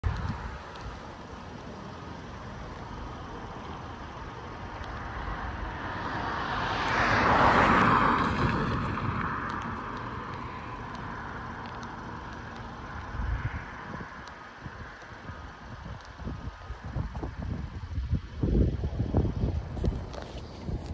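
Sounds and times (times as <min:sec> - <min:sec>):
wind rumble on microphone: 0:00.0 - 0:20.9
vehicle passing by: 0:04.9 - 0:11.4.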